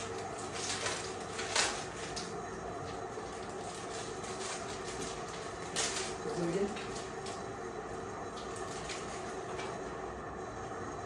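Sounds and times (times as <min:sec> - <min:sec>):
plastic wrapper crinkling: 0:00.0 - 0:07.5.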